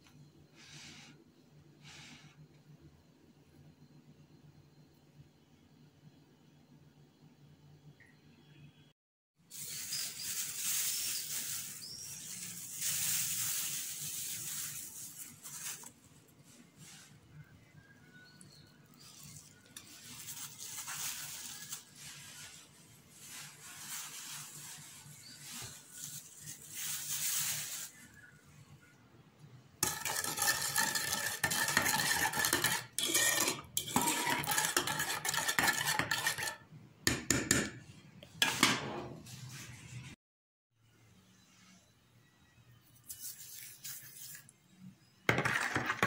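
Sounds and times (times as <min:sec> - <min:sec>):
spoon scraping metal bowl: 0:29.8 - 0:37.7.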